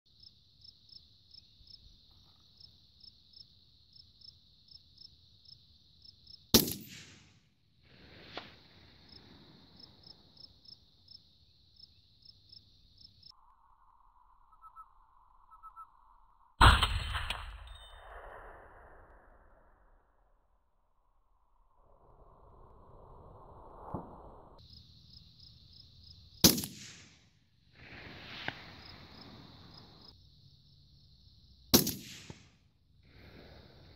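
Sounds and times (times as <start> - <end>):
crickets chirping: 0.1 - 6.6, 7.9 - 16.5, 24.4 - 26.5, 27.7 - 31.8, 32.7 - 33.9
rifle shots: 6.5 - 7.4, 26.4 - 27.2, 31.7 - 32.5.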